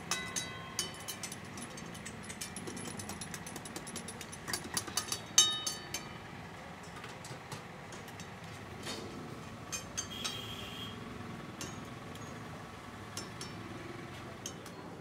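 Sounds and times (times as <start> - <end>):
utensils clinking on metal woks: 0.0 - 9.0, 13.1 - 14.9.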